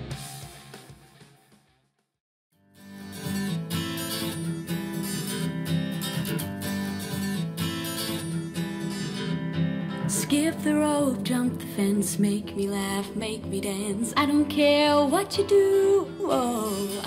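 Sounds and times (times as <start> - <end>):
pop song through speakers: 10.0 - 17.0
woman singing: 10.1 - 17.0.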